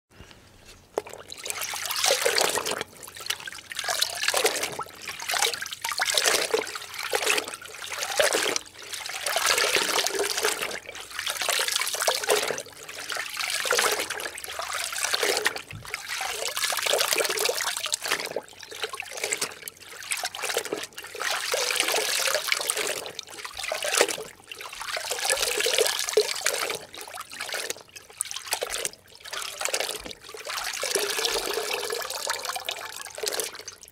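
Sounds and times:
water sloshing and trickling: 0:00.2 - 0:33.9.

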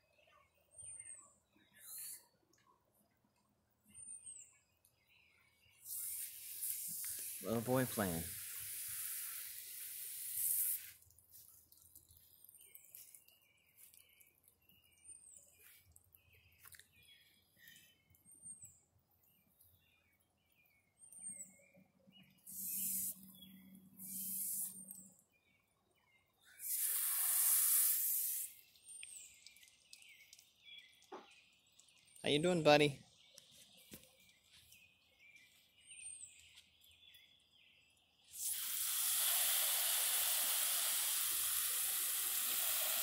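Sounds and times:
garden hose spraying: 0:05.8 - 0:14.5, 0:22.5 - 0:23.3, 0:24.0 - 0:24.9, 0:26.5 - 0:32.8, 0:38.2 - 0:43.0.

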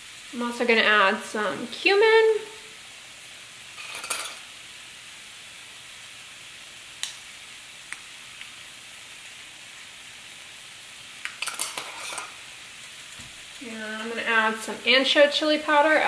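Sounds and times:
beans sizzling in a frying pan: 0:00.0 - 0:16.0
spice jar rattling: 0:03.8 - 0:04.4, 0:11.3 - 0:12.4.

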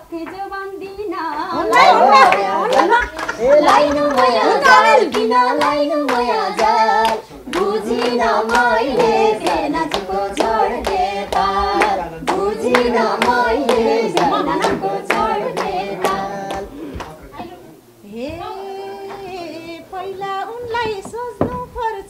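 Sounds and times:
people singing folk song: 0:00.0 - 0:22.0
hand claps: 0:01.2 - 0:17.2.

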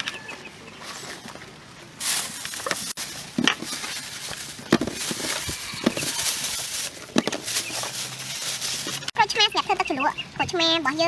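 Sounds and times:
plastic bag rustling: 0:00.8 - 0:09.2.

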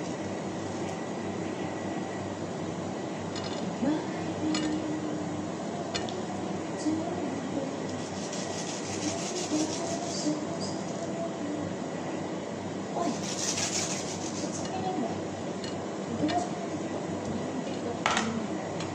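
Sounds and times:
knife scraping mango: 0:07.9 - 0:10.3, 0:13.1 - 0:14.6.

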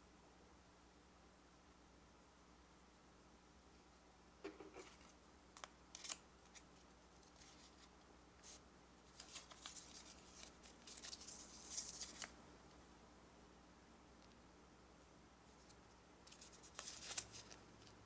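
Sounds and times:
paper rustling and crackling: 0:04.8 - 0:12.4, 0:15.6 - 0:18.0.

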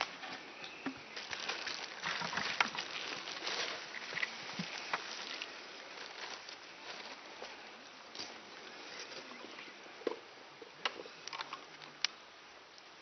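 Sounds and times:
plastic bag rustling: 0:01.1 - 0:07.6.

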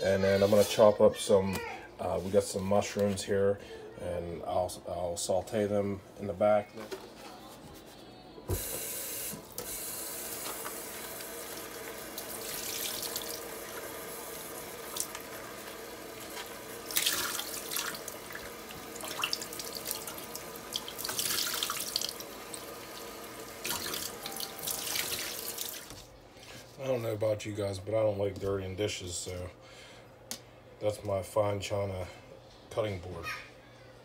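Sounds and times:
faucet running into metal sink: 0:10.2 - 0:25.9
mushrooms rinsed with splashing: 0:11.1 - 0:25.9.

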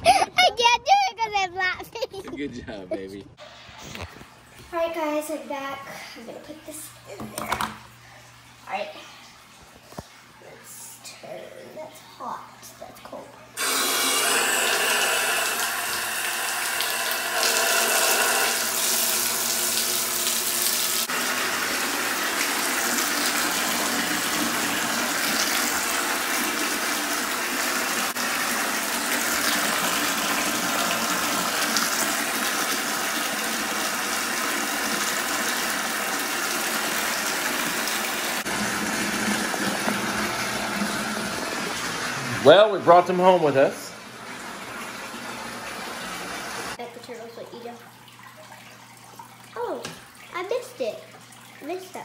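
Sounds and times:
faucet pouring into tub: 0:13.6 - 0:52.0.

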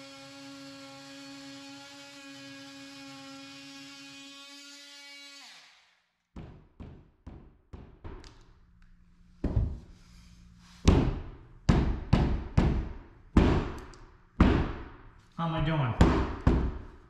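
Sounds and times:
fist thumping drywall: 0:06.4 - 0:08.2, 0:10.8 - 0:13.8, 0:14.4 - 0:15.0, 0:16.0 - 0:17.0.

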